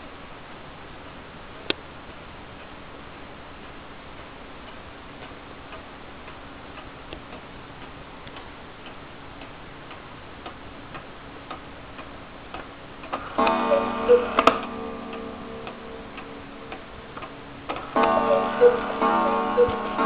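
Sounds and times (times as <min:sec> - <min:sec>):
clock striking train clicks: 0:03.6 - 0:20.0
clock ticking: 0:04.1 - 0:20.0
cuckoo call pipe tone: 0:13.4 - 0:20.0.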